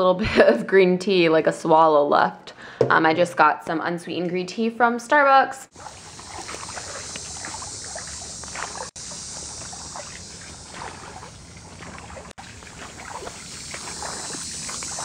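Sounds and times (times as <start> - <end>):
feet splashing through water: 5.7 - 15.0
steady hiss: 5.8 - 10.8.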